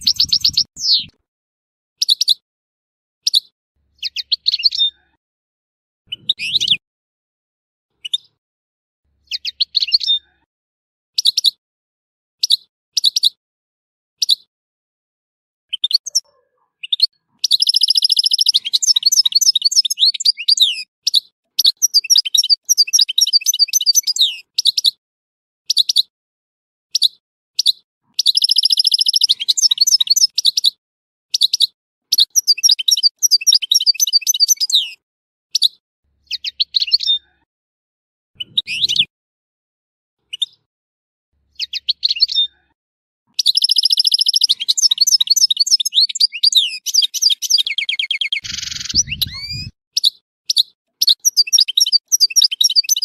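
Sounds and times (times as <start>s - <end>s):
goldfinch twittering song: 0.0s - 1.1s, 3.2s - 5.0s, 6.1s - 6.8s, 9.2s - 10.2s, 15.7s - 25.0s, 26.9s - 30.7s, 31.4s - 35.0s, 35.6s - 37.2s, 41.5s - 42.5s, 43.4s - 53.0s.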